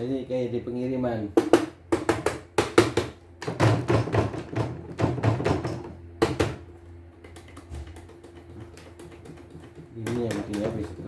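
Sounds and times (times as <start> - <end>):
machine thumping and rattling: 2.0 - 6.7.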